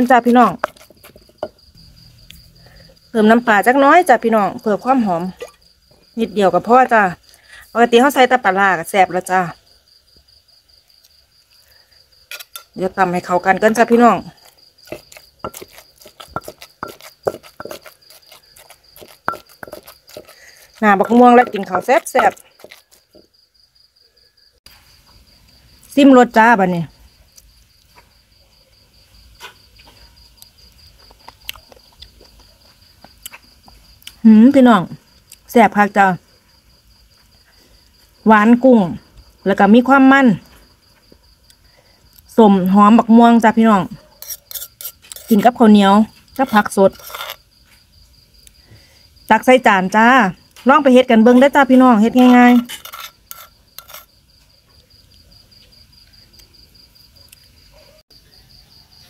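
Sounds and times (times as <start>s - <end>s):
metal spoon scraping mortar: 0.0s - 1.7s, 12.3s - 23.3s, 44.2s - 47.5s, 51.2s - 54.2s
crickets trilling: 0.0s - 59.0s
insect chirping: 0.0s - 59.0s.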